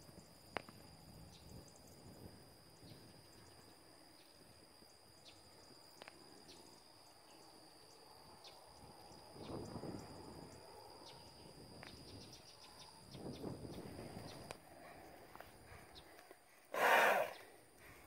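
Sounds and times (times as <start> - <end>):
insects trilling: 0.0 - 18.0
horse snorting: 16.7 - 17.4.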